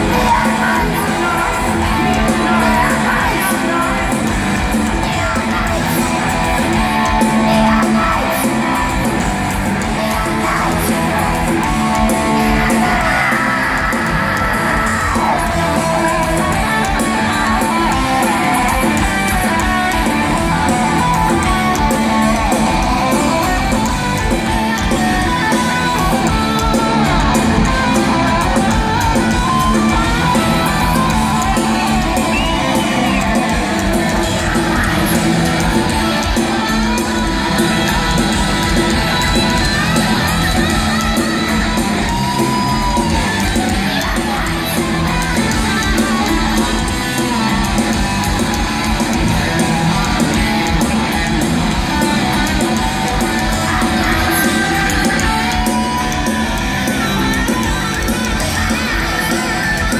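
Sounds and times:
electric guitars: 0:00.0 - 0:59.9
heavy metal band playing live: 0:00.0 - 0:59.9.

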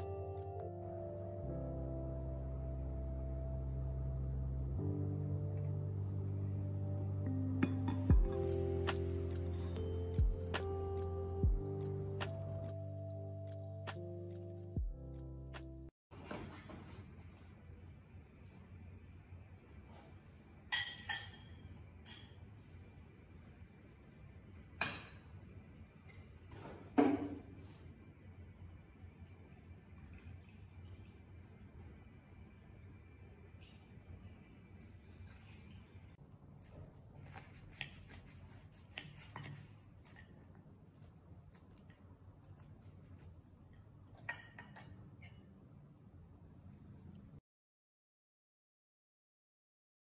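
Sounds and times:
cutlery clinking on ceramic plate: 0:20.7 - 0:22.4, 0:44.2 - 0:45.5.

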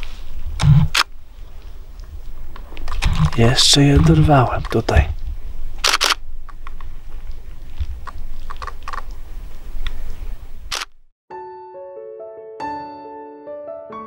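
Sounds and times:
low wind rumble: 0:00.0 - 0:11.1
camera shutter clicking: 0:05.8 - 0:06.2, 0:10.7 - 0:10.9
piano music: 0:11.3 - 0:14.0.

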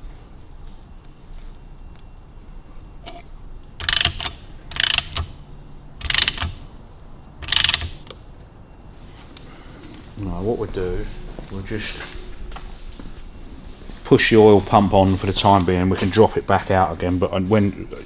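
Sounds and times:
socket ratchet clicking: 0:03.8 - 0:05.4, 0:06.0 - 0:06.6, 0:07.4 - 0:08.2.

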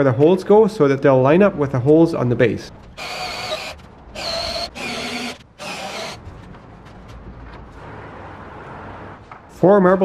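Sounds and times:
cordless drill boring into wood: 0:03.0 - 0:06.2.

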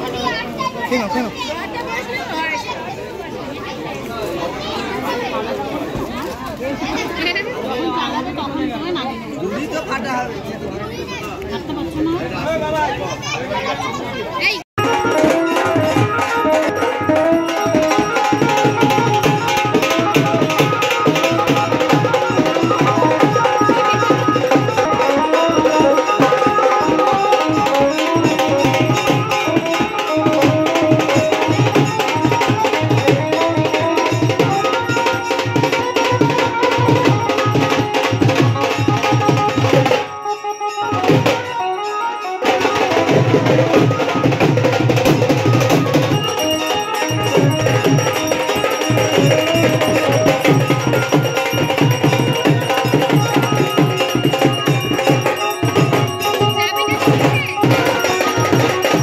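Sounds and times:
music with fast drum rhythm: 0:14.8 - 0:59.0.

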